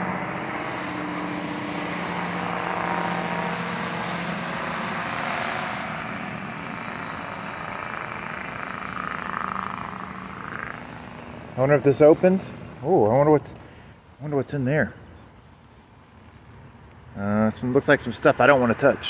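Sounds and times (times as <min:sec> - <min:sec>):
engine running: 0:00.0 - 0:13.9.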